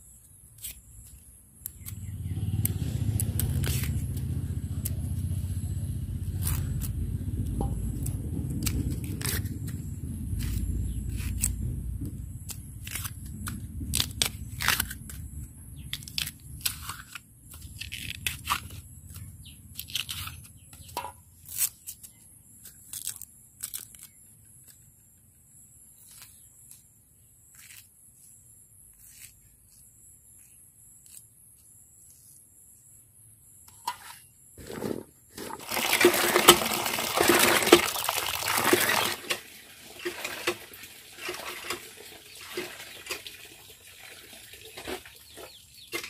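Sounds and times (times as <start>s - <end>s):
knife cutting bamboo shoot: 0.6s - 24.8s.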